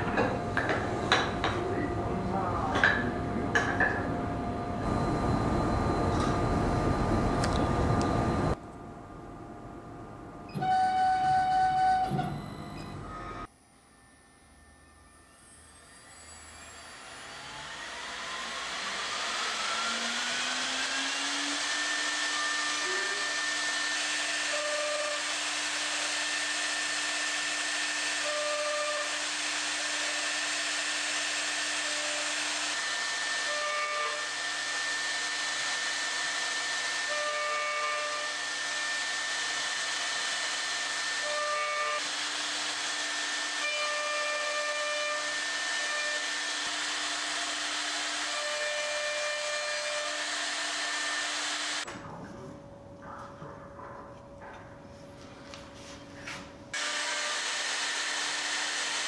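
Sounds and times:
spindle motor whining: 4.4 - 8.6, 10.5 - 51.9
router bit cutting wood: 15.4 - 51.9, 56.8 - 59.0.

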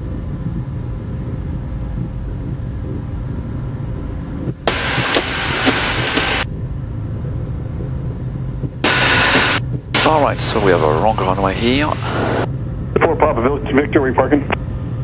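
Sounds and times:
low rumble of jet cabin: 0.0 - 15.0
radio hiss: 4.6 - 6.5, 8.7 - 14.6.

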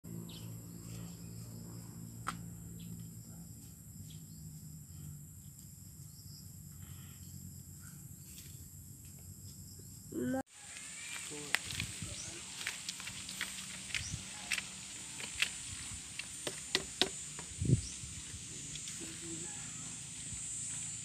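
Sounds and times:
crickets chirring: 0.1 - 21.0.

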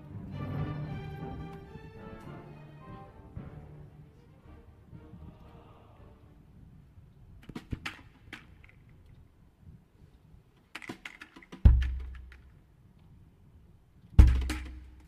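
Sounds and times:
sharp percussion clicks and taps: 7.4 - 9.2, 10.7 - 12.6, 14.2 - 15.0
deep drum stroke: 14.2 - 15.0.

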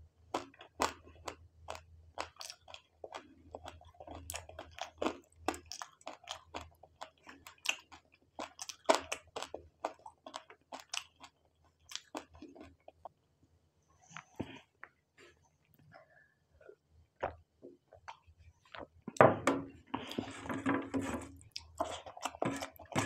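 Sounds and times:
person chewing noodles: 0.3 - 13.2, 21.2 - 23.0.

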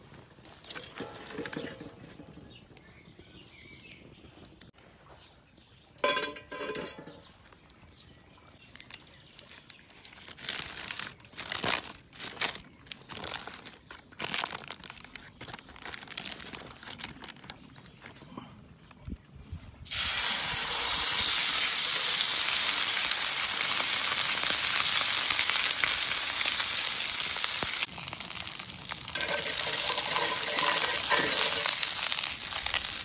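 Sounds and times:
crinkling and scraping: 0.0 - 3.0, 6.0 - 7.8, 8.5 - 19.0, 27.8 - 33.0.

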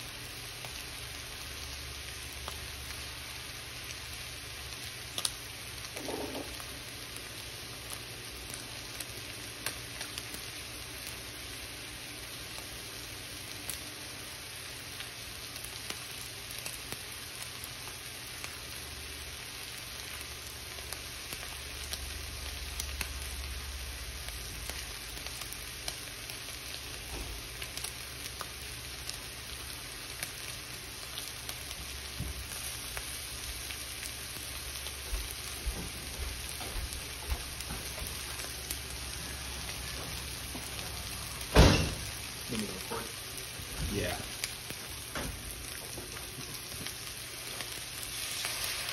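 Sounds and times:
meat sizzling in a skillet: 0.0 - 48.9
sharp thump: 41.5 - 42.1.

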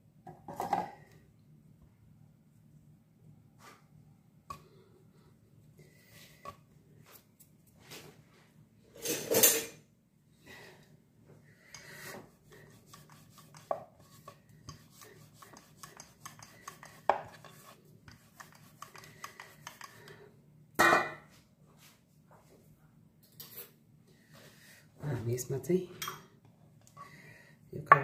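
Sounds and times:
rolling pin on wooden board: 12.1 - 20.1.

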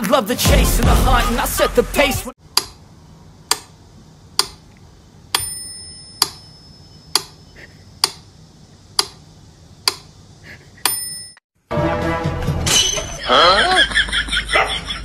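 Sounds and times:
metronome bell ringing: 5.4 - 7.1, 10.9 - 11.4.

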